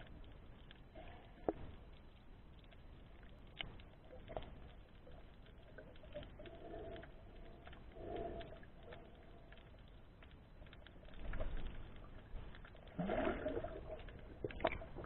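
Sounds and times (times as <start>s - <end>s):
underwater clicks: 0.0s - 15.0s
low underwater rush: 3.8s - 15.0s.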